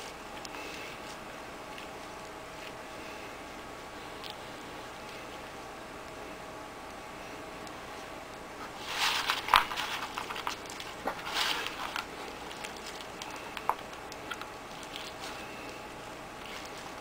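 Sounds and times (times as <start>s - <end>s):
gravel mix rustling and crunching: 8.7s - 17.0s.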